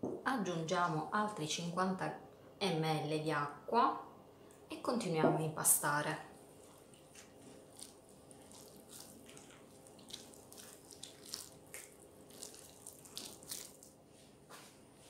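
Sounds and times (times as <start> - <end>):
hand kneading wet dough: 6.4 - 15.0.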